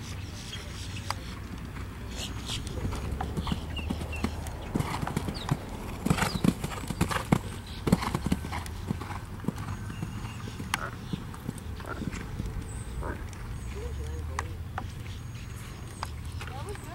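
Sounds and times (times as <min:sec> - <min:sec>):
hoofbeats on sand: 0:00.6 - 0:12.4.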